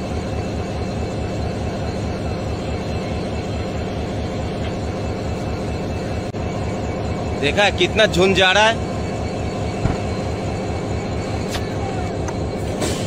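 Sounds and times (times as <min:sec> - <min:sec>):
train locomotive rumble: 0:00.0 - 0:13.0.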